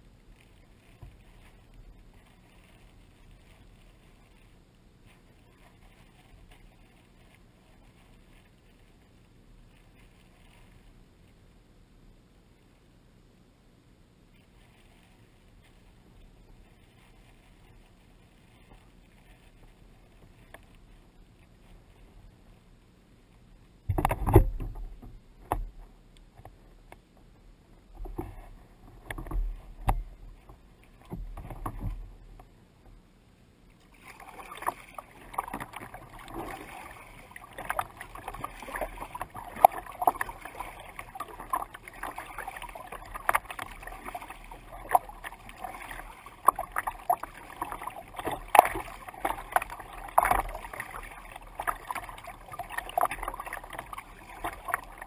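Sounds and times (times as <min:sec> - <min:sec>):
water splashes: 0:00.0 - 0:11.4, 0:33.7 - 0:55.0
water slapping kayak hull: 0:00.0 - 0:11.5, 0:14.3 - 0:55.0
water rushing along hull: 0:00.0 - 0:12.8, 0:14.0 - 0:55.0.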